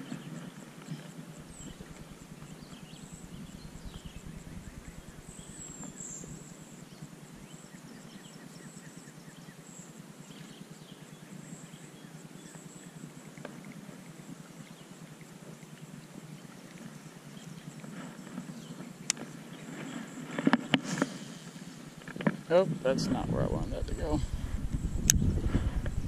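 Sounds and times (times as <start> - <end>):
bird chirps: 1.4 - 9.6.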